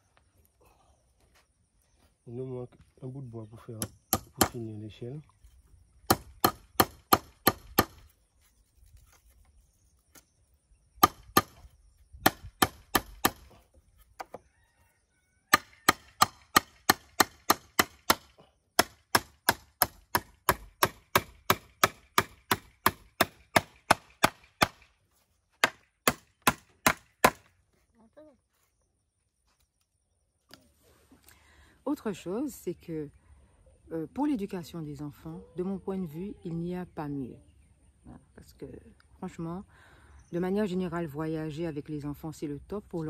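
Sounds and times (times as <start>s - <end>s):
hammer driving nails into wood: 6.1s - 8.0s.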